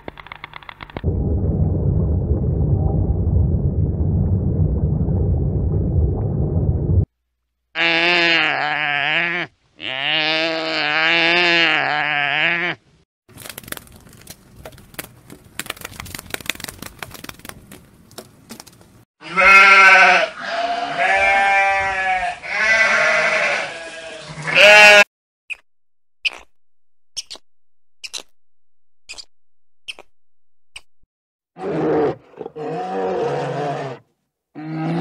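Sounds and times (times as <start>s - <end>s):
ram bleating: 7.8s - 12.8s, 19.2s - 25.1s.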